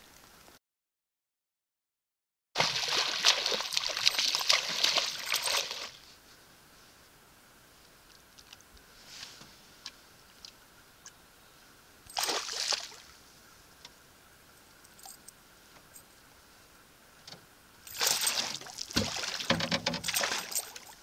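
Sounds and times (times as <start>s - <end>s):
fish splashing in water: 2.6s - 6.0s, 12.1s - 13.1s, 17.9s - 21.0s.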